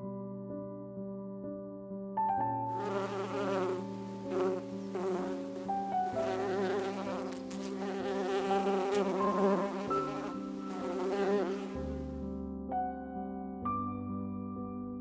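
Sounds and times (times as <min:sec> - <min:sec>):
soft keyboard music: 0:00.0 - 0:15.0
honey bees buzzing: 0:02.8 - 0:12.1.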